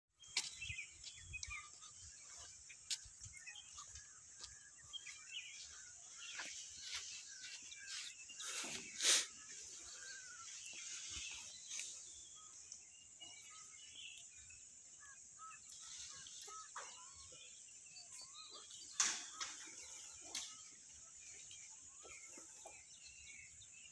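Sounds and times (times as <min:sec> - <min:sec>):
small birds chirping: 0:00.1 - 0:23.9
steady high-pitched hiss: 0:00.5 - 0:22.3.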